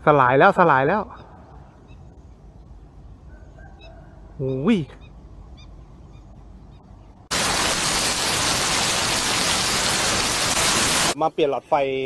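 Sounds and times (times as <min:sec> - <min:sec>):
heavy rain pouring: 0:07.3 - 0:11.2.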